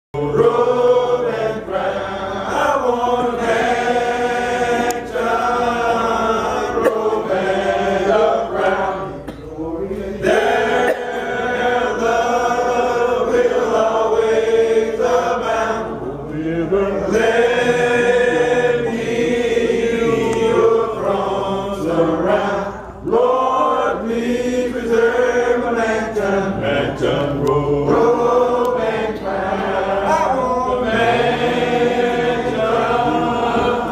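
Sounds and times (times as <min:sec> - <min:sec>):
congregation singing a hymn: 0:00.2 - 0:33.9.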